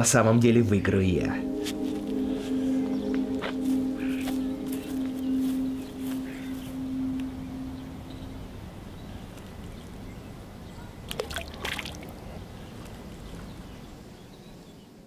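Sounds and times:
steady low rumble: 0.0s - 11.1s
object splashing into water: 11.1s - 12.1s.

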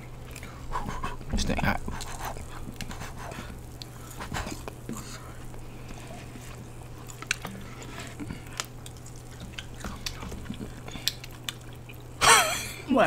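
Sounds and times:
chewing with wet clicks: 0.0s - 0.6s, 1.8s - 12.2s
steady low hum: 0.0s - 13.0s
lip smacks: 0.2s - 12.2s.

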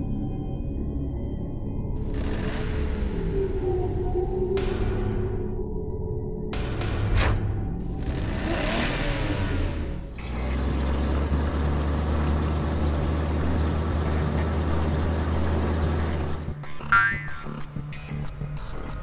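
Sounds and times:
cartoon truck engine revving: 2.0s - 4.0s, 7.8s - 17.3s.

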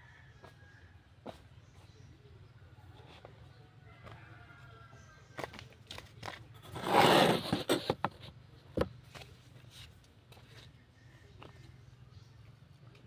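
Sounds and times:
phone scraping on wood: 6.6s - 8.4s.

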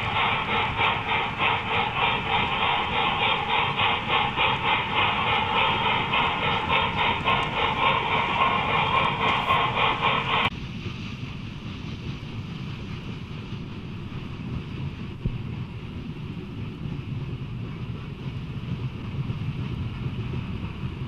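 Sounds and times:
model freight cars rolling: 0.0s - 10.5s
rhythmic steam chuffing: 0.0s - 21.0s.

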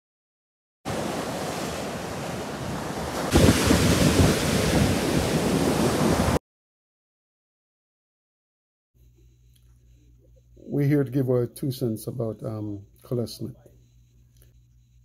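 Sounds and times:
ocean surf breaking: 0.9s - 6.4s
wind on microphone: 1.8s - 6.4s.

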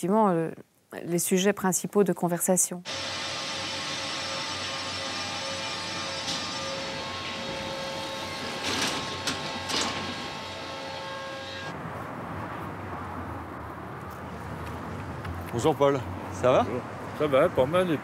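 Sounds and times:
outdoor background: 0.0s - 18.0s
station noise: 2.9s - 11.8s
train electrical hum with whining tones: 2.9s - 11.8s.

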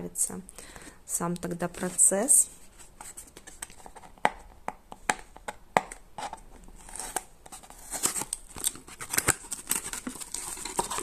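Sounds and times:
plastic wrapping crinkling: 6.8s - 11.0s.

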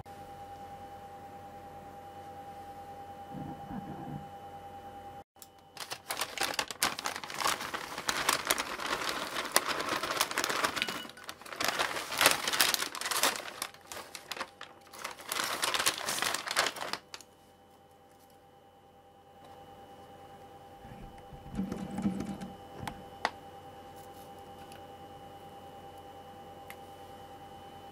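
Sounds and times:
plastic snack bag crinkling: 5.7s - 17.3s.

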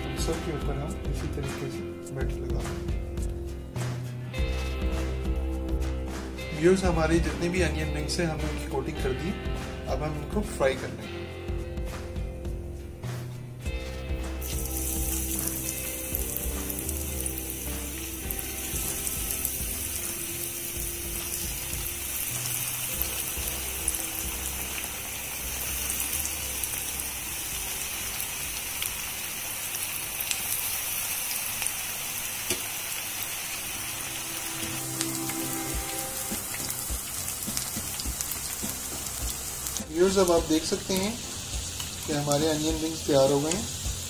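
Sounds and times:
onion rings deep-frying in oil: 14.4s - 44.0s.

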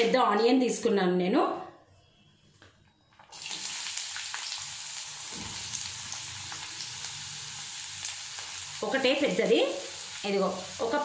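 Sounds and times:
onion sizzling in hot oil: 3.3s - 11.0s.

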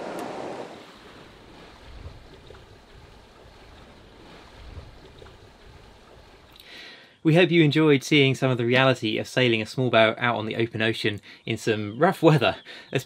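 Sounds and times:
low rumble: 0.0s - 6.5s
water rushing around yacht: 0.0s - 6.6s.

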